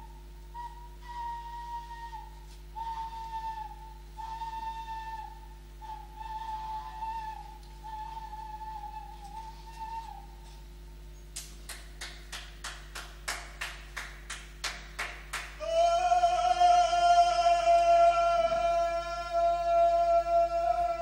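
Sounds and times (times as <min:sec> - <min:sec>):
person singing long high note: 0:15.6 - 0:21.0.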